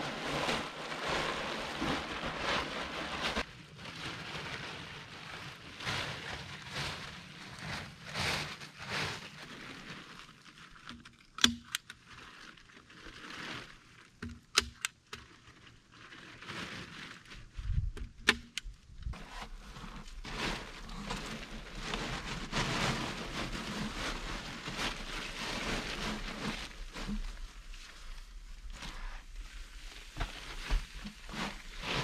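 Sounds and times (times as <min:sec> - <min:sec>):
plastic tarpaulin rustling: 0:00.0 - 0:32.0.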